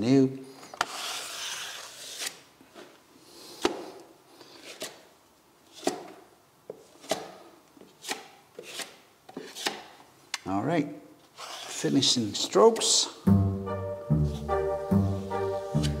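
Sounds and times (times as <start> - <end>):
plastering knife scraping a wall: 0.8 - 2.4, 11.3 - 11.9.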